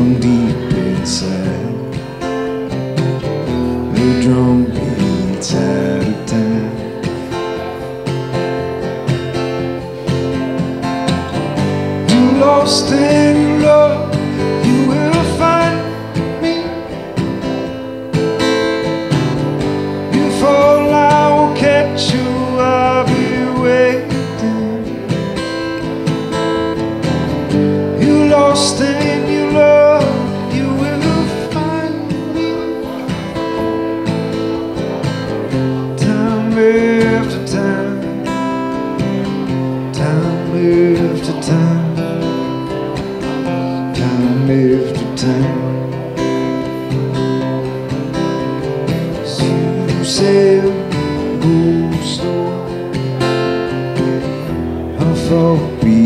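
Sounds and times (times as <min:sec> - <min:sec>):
acoustic guitar strumming: 0:00.0 - 0:56.0.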